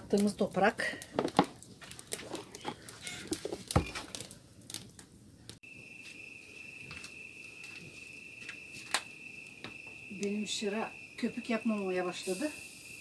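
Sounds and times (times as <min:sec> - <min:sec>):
crickets trilling: 0:05.6 - 0:13.0
scattered clicks and pops: 0:08.4 - 0:10.4.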